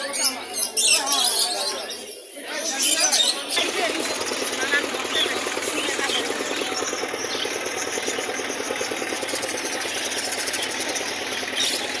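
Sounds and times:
small engine idling: 0:03.5 - 0:12.0
budgerigars chirping: 0:06.1 - 0:12.0.

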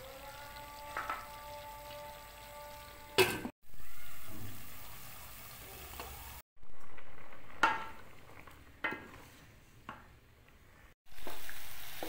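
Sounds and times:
cooking pot hissing and bubbling: 0:00.0 - 0:03.1, 0:03.7 - 0:09.7, 0:10.7 - 0:12.0.

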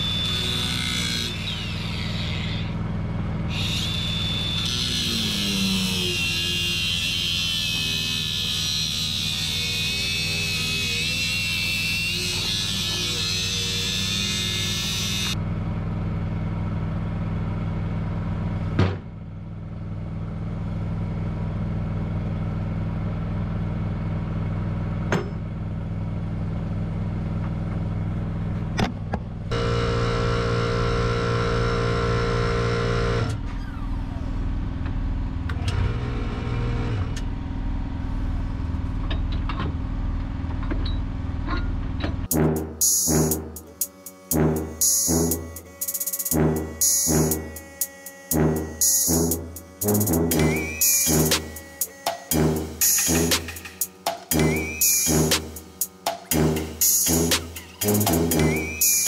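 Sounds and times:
loud high-pitched whine: 0:00.0 - 0:15.7, 0:29.5 - 0:34.8, 0:42.3 - 0:59.0.

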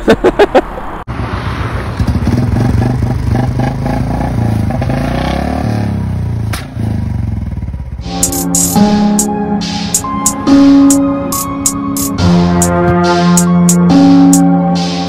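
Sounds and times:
motorcycle engine revving: 0:01.6 - 0:08.8
sharp click: 0:08.2 - 0:12.7.

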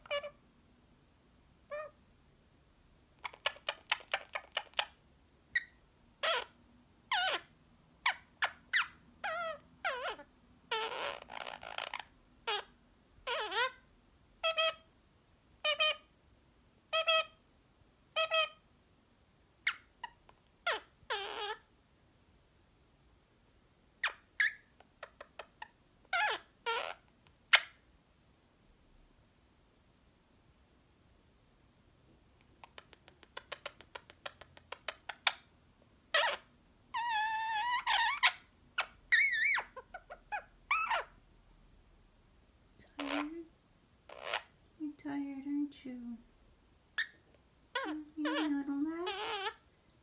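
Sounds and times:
parrot chirps: 0:00.0 - 0:00.4, 0:01.7 - 0:02.0, 0:03.2 - 0:14.9, 0:15.6 - 0:16.1, 0:16.9 - 0:17.4, 0:18.2 - 0:18.6, 0:19.6 - 0:21.7, 0:24.0 - 0:27.8, 0:32.6 - 0:35.5, 0:36.1 - 0:41.2, 0:42.9 - 0:43.4, 0:44.1 - 0:44.6, 0:46.9 - 0:49.6.

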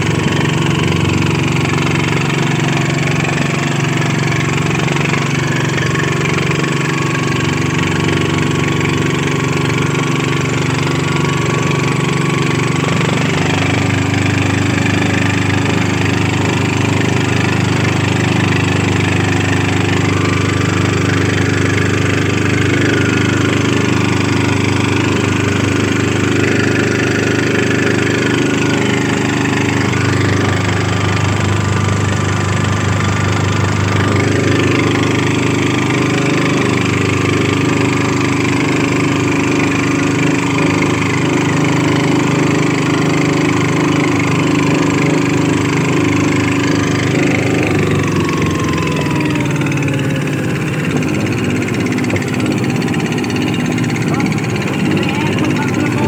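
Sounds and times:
diesel tractor engine running: 0:00.0 - 0:56.0.

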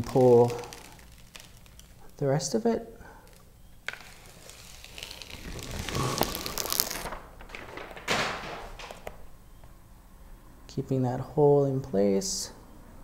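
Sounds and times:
paper backing peeling and crinkling: 0:00.0 - 0:02.3, 0:03.2 - 0:09.3.

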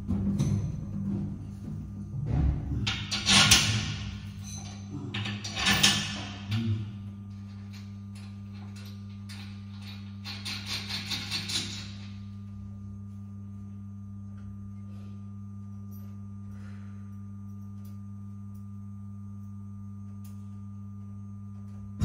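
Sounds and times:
low electrical mains hum: 0:00.0 - 0:22.0.

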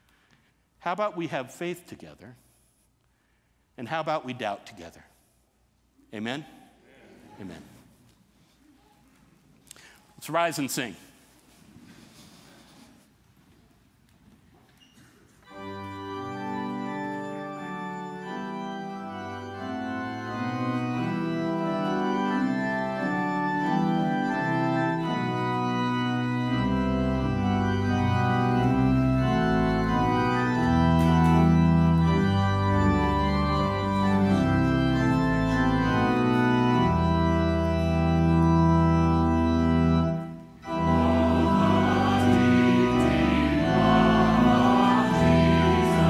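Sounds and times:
pipe organ playing chords: 0:15.4 - 0:46.0.

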